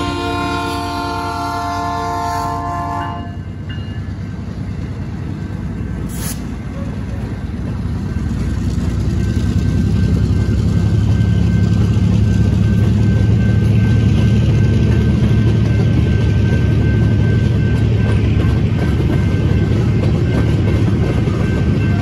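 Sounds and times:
locomotive horn blast: 0.0s - 3.4s
diesel locomotive rumble: 0.0s - 22.0s
train rolling over crossing: 0.0s - 22.0s.

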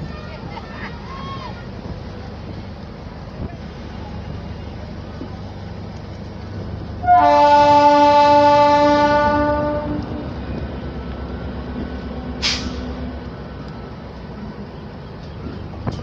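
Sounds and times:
train rumbling: 0.0s - 16.0s
train horn: 7.0s - 10.5s
sharp hiss: 12.4s - 13.0s.

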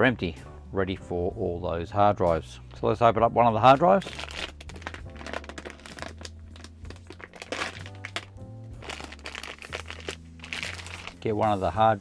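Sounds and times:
background music with bass line: 0.0s - 12.0s
plastic bag crinkling: 3.7s - 11.4s.

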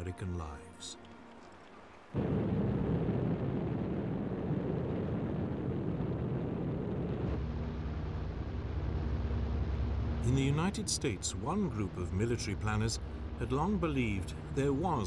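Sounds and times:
propeller plane engine drone: 5.9s - 15.0s.

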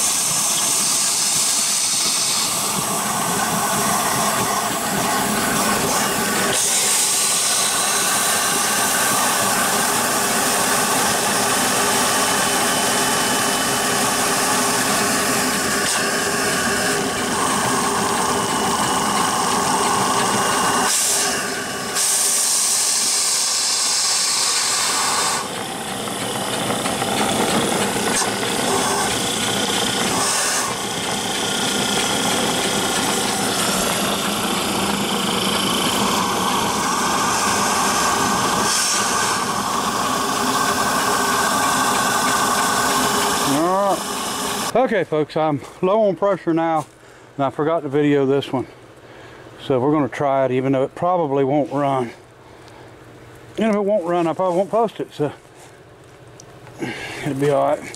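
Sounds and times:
steam engine running: 0.0s - 44.8s
steam hissing: 0.0s - 44.8s.

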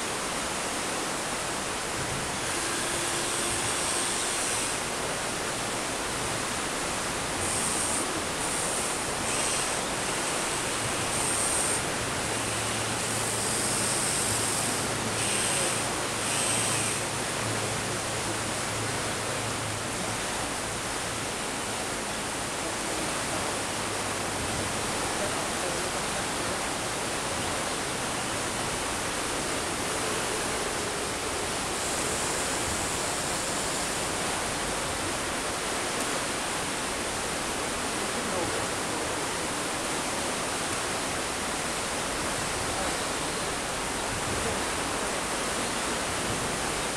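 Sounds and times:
flowing water rushing: 0.0s - 46.9s
small electric motors whirring: 7.4s - 17.2s.

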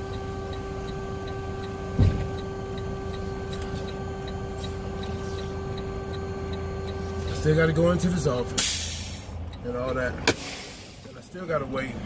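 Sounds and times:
truck engine idling: 0.0s - 12.0s
dull thump: 2.0s - 2.3s.

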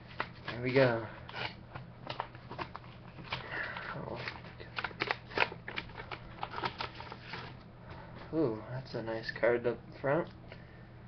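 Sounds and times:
paper rustling and crinkling: 0.0s - 7.6s.

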